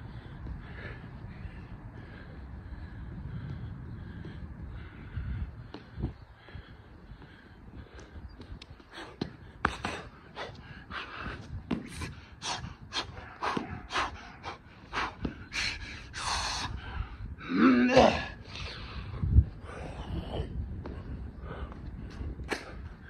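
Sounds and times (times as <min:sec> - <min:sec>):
man breathing hard: 0:00.0 - 0:17.5, 0:18.1 - 0:23.0
man groaning: 0:17.4 - 0:18.4.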